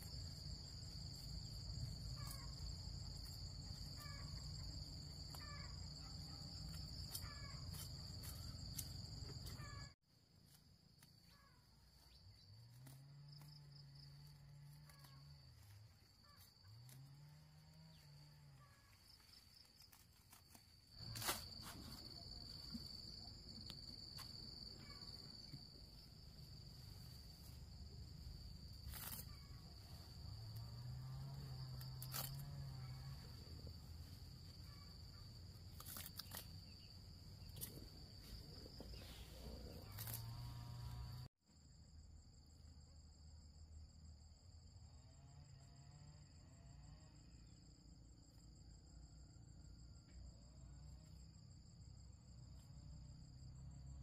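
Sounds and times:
insects trilling: 0.0s - 41.3s.

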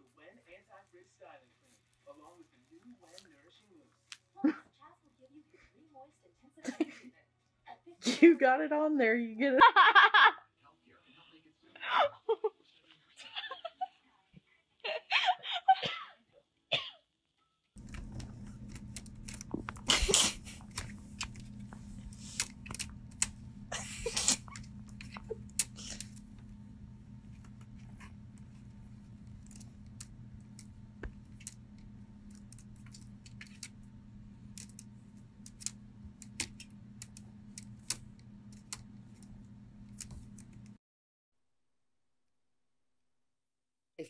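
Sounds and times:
laptop keys clicking: 17.8s - 40.8s
steady low hum: 17.8s - 40.8s.

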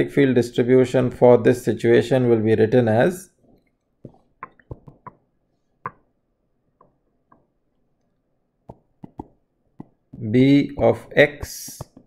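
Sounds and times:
whiteboard pen clicks and taps: 4.1s - 5.2s, 8.7s - 10.2s, 11.4s - 12.0s.

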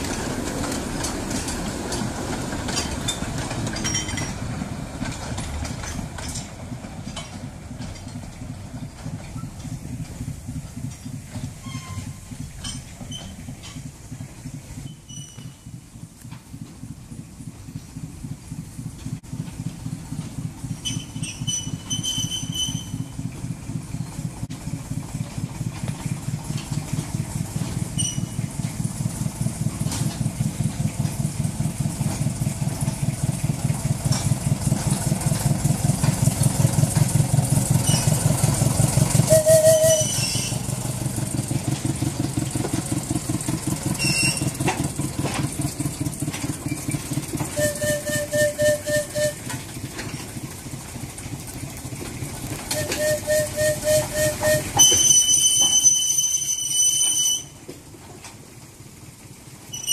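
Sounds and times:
diesel locomotive engine chugging: 0.0s - 59.9s
short high squeals: 11.6s - 13.4s, 14.8s - 15.7s, 20.8s - 23.1s, 28.0s - 28.4s, 37.8s - 38.2s, 39.3s - 40.7s, 44.0s - 44.6s, 47.6s - 49.5s, 52.7s - 57.6s, 59.7s - 59.9s.

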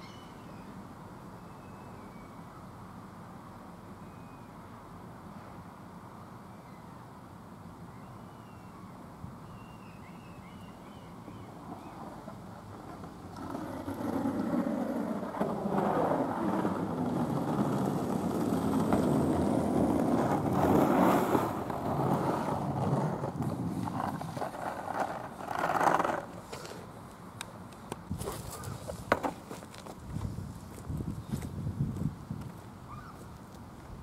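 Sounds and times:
skateboard wheels rolling on asphalt: 10.4s - 34.0s.

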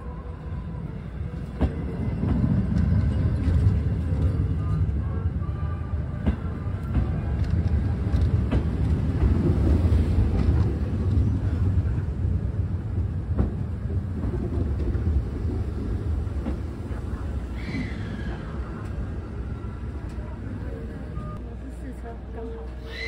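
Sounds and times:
train rumbling: 0.0s - 23.0s
train wheels clicking: 6.2s - 11.3s.

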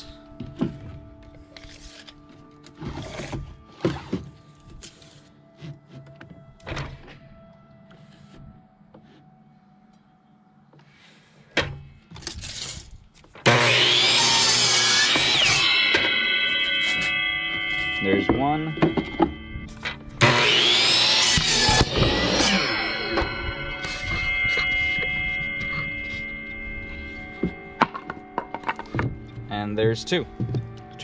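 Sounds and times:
miter saw cutting board: 13.4s - 29.1s.

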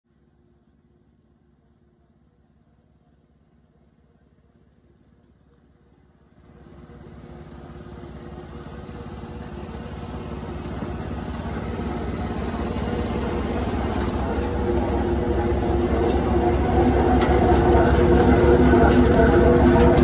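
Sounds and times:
engine running: 3.1s - 20.0s.

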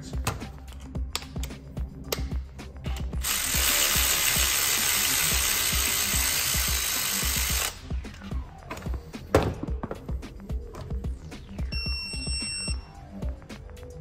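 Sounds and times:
ratchet clicking: 3.2s - 7.8s.

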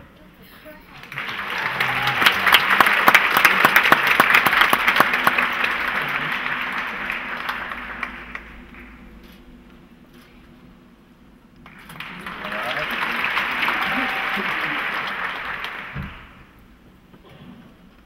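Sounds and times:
audience applauding: 1.0s - 9.2s, 11.6s - 16.6s.

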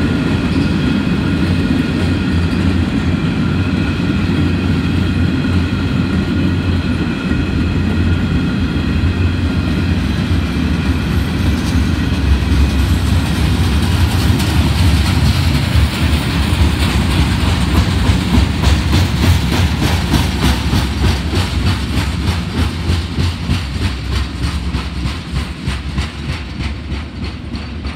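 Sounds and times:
train wheels rumbling on rail: 0.0s - 27.9s
wheels clacking over rail joints: 9.1s - 27.9s.

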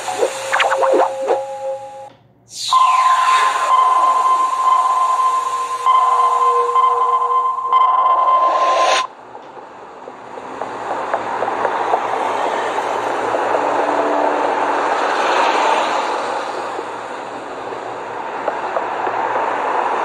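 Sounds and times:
traffic noise: 8.6s - 20.0s.

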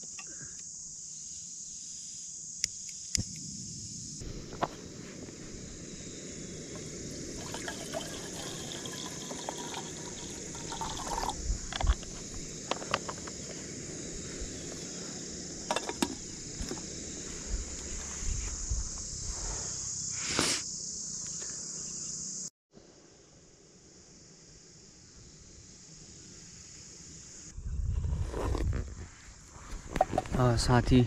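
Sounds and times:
insect chirring: 0.0s - 28.0s
liquid pouring into metal pot: 7.3s - 11.4s
utensils knocking on wooden table: 15.7s - 16.2s.

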